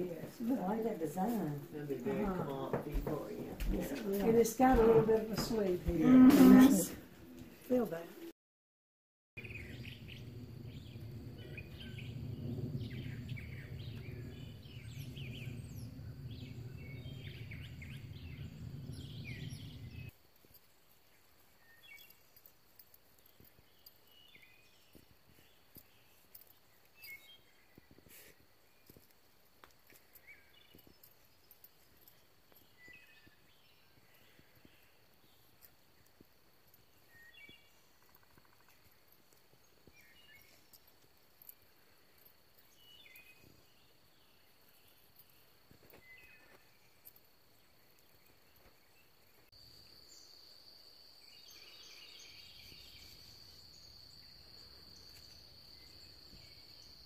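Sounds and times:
bird chirps: 21.6s - 29.1s
high insect drone: 30.2s - 57.0s
pulsing insect chorus: 30.2s - 57.0s.

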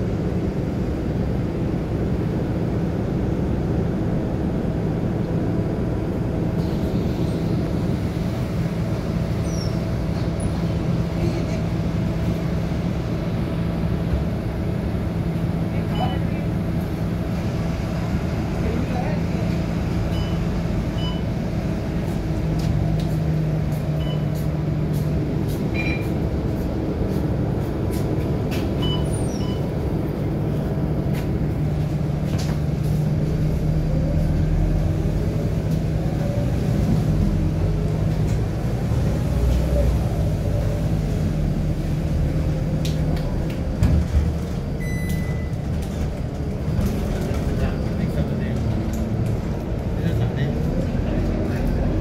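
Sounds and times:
bus diesel engine humming: 0.0s - 52.0s
short high beep: 44.8s - 45.6s.

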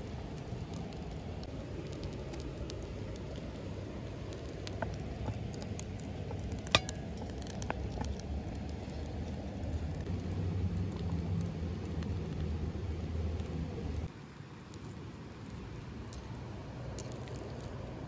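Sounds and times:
low rumble: 0.0s - 14.1s
wood fire crackling: 0.0s - 18.0s.

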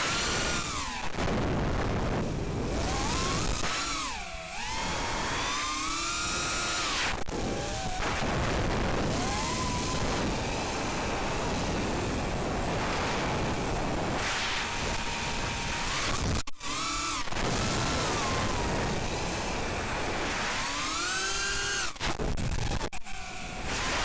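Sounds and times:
wind rush on microphone: 0.0s - 3.6s, 6.4s - 16.4s, 17.1s - 20.7s
drone motors whining: 0.0s - 24.0s.

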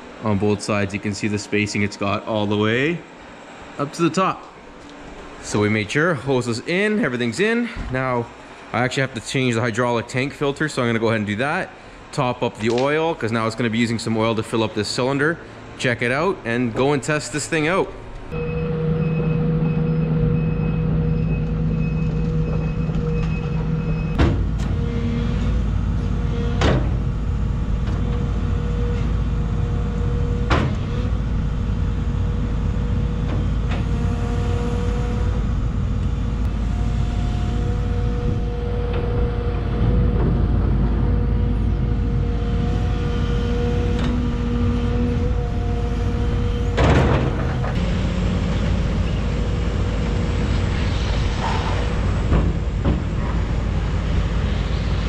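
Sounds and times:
excavator diesel engine: 0.0s - 55.0s
steady whine: 0.0s - 55.0s
travel alarm beeping: 18.3s - 24.2s, 34.7s - 40.1s.

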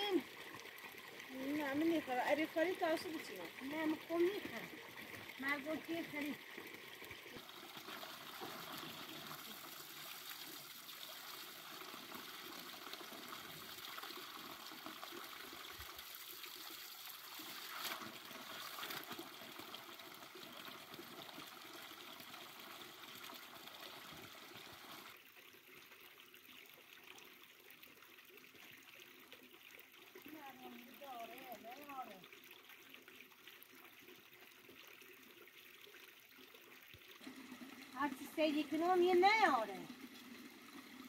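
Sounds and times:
water trickling and splashing on stones: 0.0s - 41.0s.

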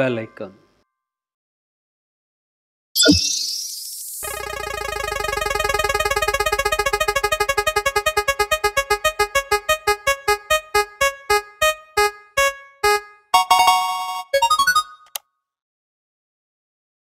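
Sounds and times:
prize wheel electronic ticks: 4.2s - 15.2s.

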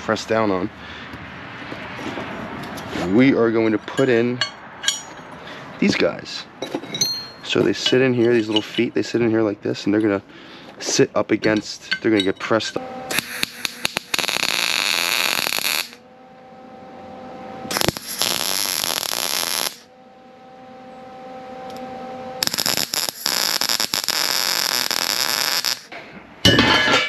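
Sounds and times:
faint steady hum: 3.4s - 27.0s
welder arc crackling: 13.0s - 16.0s, 17.6s - 19.9s, 21.6s - 26.0s.

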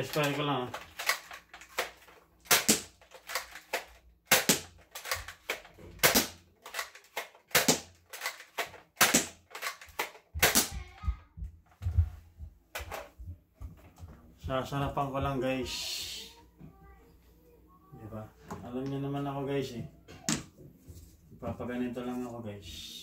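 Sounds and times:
toy blaster plastic snap: 0.2s - 10.8s.

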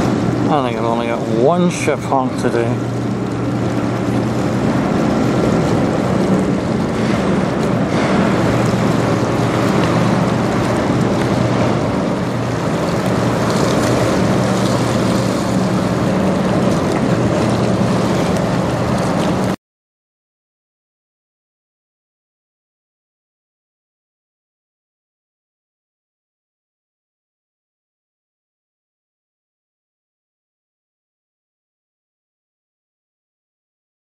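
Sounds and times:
choppy river water: 0.0s - 19.6s
ship engine drone: 0.0s - 19.6s
wind on microphone: 0.0s - 19.6s.

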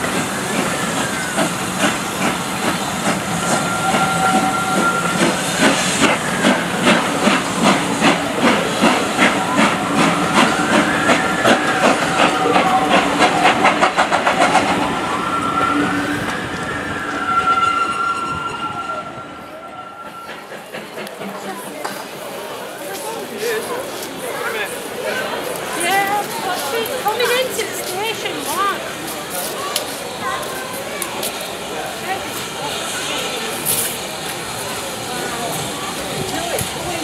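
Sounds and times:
train wheels clattering: 0.0s - 18.6s, 19.7s - 24.4s
wheels squealing: 0.4s - 21.4s.

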